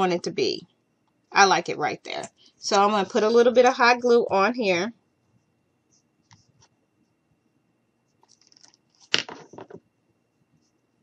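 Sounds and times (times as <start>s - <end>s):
faint clicks and rustles: 8.0s - 9.8s.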